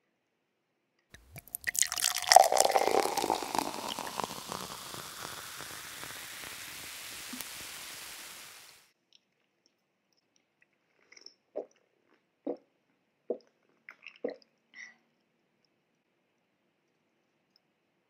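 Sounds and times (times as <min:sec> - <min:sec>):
soda pouring over ice: 0:01.2 - 0:08.8
fizzing hiss of soda foam: 0:01.2 - 0:08.9.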